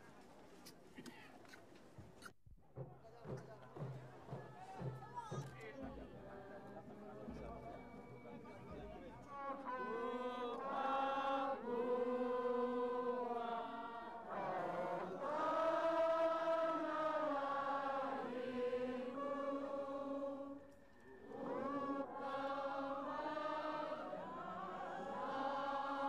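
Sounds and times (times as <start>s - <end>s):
crowd singing slow chant: 5.8s - 8.5s, 9.2s - 26.0s.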